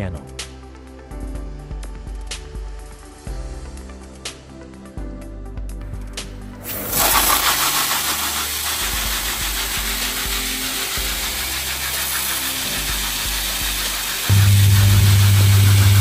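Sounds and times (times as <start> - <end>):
spray nozzles hissing: 6.6 - 16.0
water splashing into gutter: 6.7 - 14.3
steady low hum: 8.9 - 16.0.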